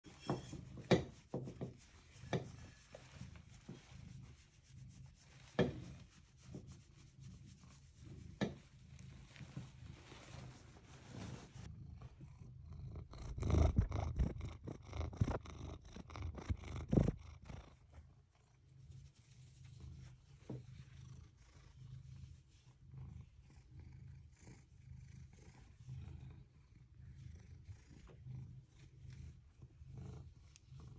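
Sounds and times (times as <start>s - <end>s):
brushing and rustling: 0.0s - 12.2s, 13.2s - 23.4s
cat purring: 0.2s - 30.9s.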